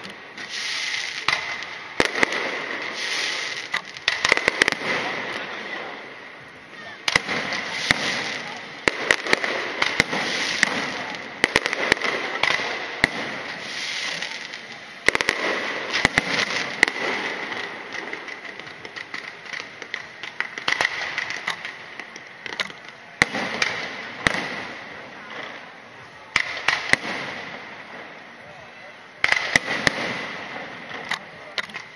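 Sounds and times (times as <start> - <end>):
fireworks bangs: 0.0 - 31.9
fireworks crackling: 0.0 - 31.9.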